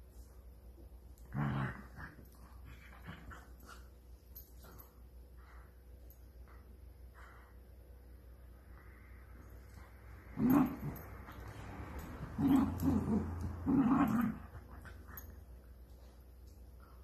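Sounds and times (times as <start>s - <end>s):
dogs growling in play: 1.1s - 5.8s, 9.3s - 16.2s.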